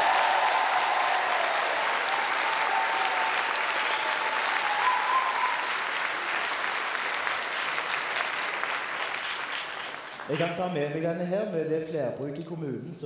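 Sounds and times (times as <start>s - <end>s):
audience applauding: 0.0s - 10.7s.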